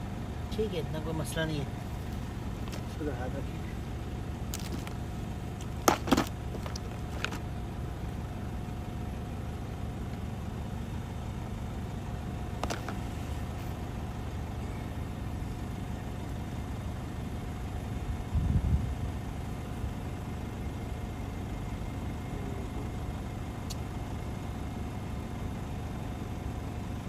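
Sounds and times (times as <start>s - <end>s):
vehicle engine idling: 0.0s - 27.0s
plastic case clicks: 5.6s - 7.4s, 12.6s - 13.0s.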